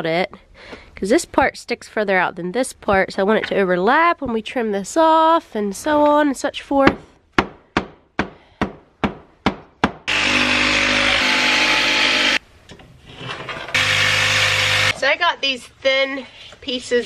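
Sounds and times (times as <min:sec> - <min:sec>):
sharp knocks: 0:06.9 - 0:10.4
power tool cutting plywood: 0:10.1 - 0:12.4, 0:13.7 - 0:15.0.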